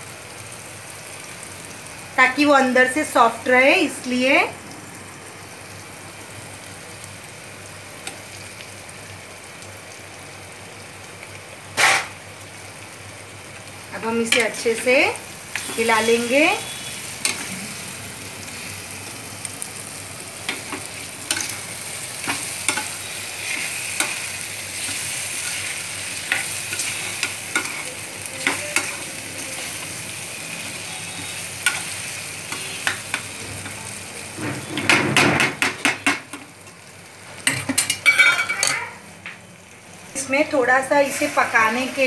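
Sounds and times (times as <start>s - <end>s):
vegetables sizzling in a pan: 0.0s - 42.0s
metal spatula scraping a pan: 20.5s - 29.8s.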